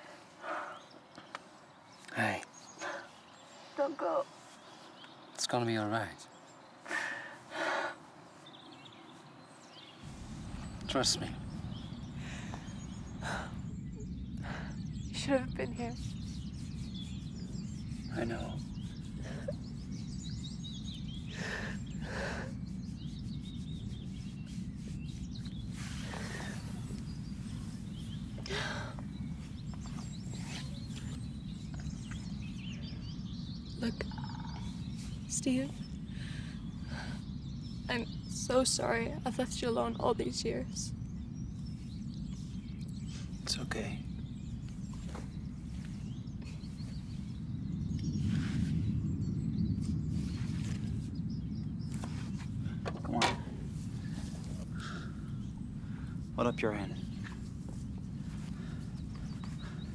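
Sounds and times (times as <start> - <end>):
birds chirping: 0.0 - 59.9
wind rumble: 6.3 - 59.9
soft rustles: 23.5 - 32.4, 44.6 - 47.4, 49.7 - 54.7, 57.1 - 59.9.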